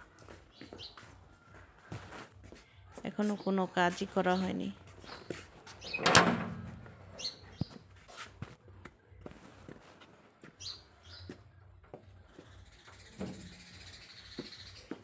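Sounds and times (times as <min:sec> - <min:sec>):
metal gate clicks and knocks: 0:05.8 - 0:06.9.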